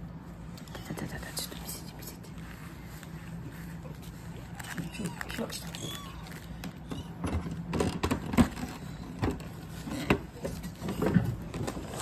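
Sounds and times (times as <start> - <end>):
tissue rubbing on kitten: 1.2 - 6.4.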